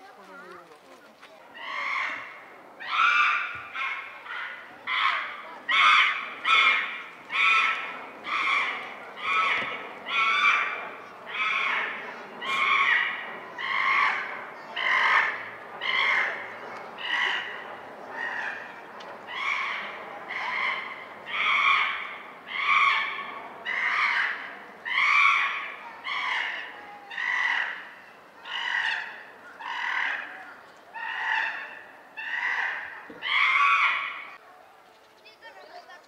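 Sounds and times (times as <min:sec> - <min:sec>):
animal harsh call: 0:01.6 - 0:34.4.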